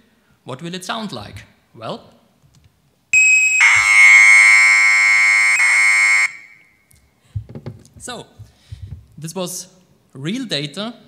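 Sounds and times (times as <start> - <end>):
buzz of data tones: 3.2 - 6.5
steady high data tone: 3.2 - 6.6.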